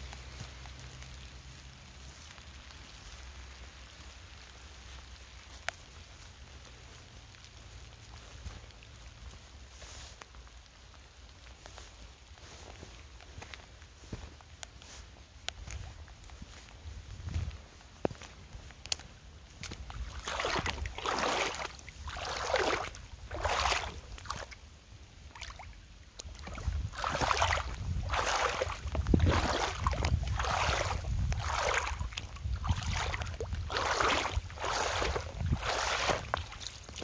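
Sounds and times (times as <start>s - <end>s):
boots splashing through puddle: 0.0s - 37.0s.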